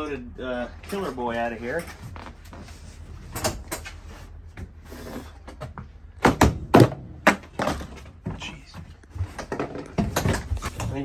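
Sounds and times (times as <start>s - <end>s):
demolition knocks and bangs: 6.2s - 8.5s.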